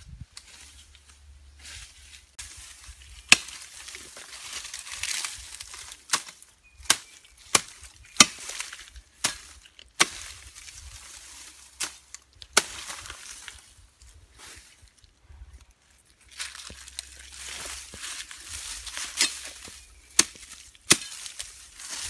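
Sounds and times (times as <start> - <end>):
grass rustling: 0.0 - 22.0
blade chopping grass: 3.2 - 4.2, 5.0 - 10.6, 16.6 - 22.0.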